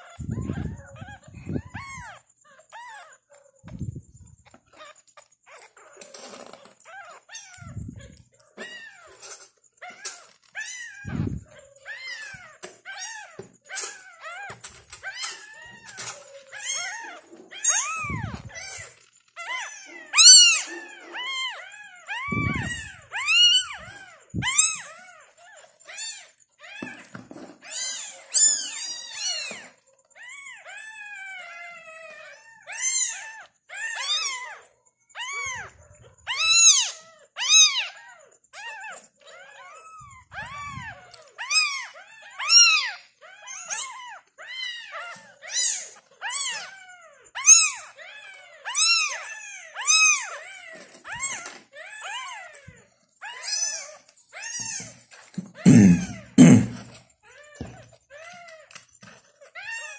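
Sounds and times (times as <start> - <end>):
kittens mewing: 0.0 - 25.2, 40.0 - 43.9, 47.4 - 57.9.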